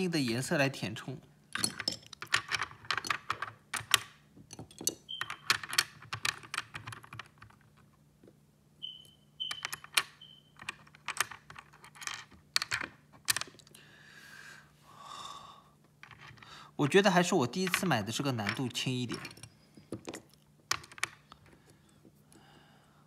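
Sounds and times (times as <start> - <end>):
plastic puzzle pieces clicking: 1.5 - 7.7, 9.6 - 13.7, 17.6 - 21.6.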